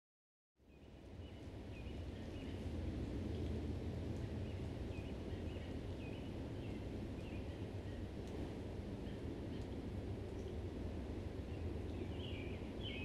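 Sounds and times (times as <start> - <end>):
low steady rumble: 0.7 - 13.0
bird chirping: 12.0 - 13.0.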